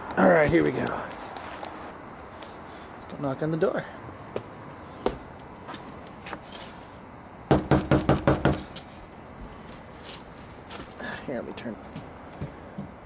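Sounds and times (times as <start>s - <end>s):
knuckles knocking on door: 7.5s - 8.6s.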